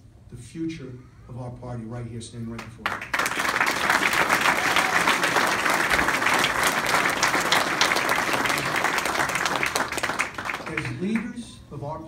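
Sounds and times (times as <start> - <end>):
crowd applauding: 2.8 - 11.3.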